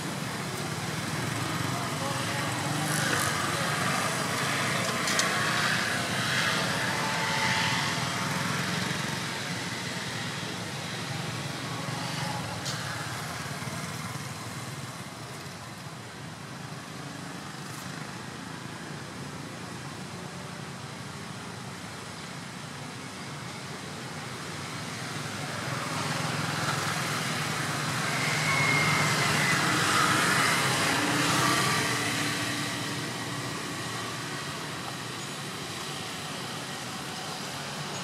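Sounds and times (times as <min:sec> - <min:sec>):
vehicle passing on road: 0:00.0 - 0:10.6.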